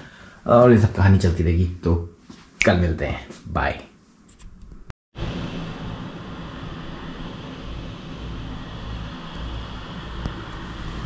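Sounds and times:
constant hum: 4.6s - 11.0s
low rumble: 5.2s - 11.0s.

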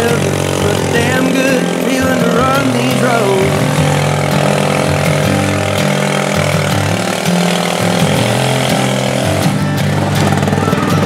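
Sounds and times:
country music instrumental: 0.0s - 11.0s
lawn mower engine running hard: 0.0s - 11.0s.

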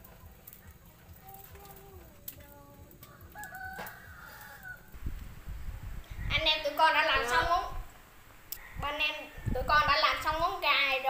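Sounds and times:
rooster crowing: 3.0s - 5.0s, 8.5s - 9.9s.

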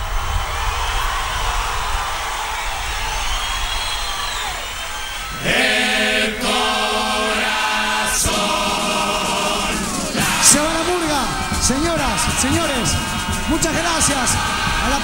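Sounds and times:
audience noise: 0.0s - 15.0s
chorus singing held chords: 5.1s - 15.0s.

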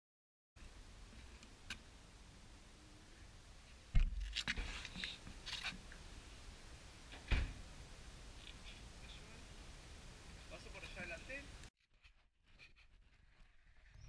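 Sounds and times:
light clicks and scrapes: 4.3s - 5.9s
dull thump: 7.1s - 7.6s.

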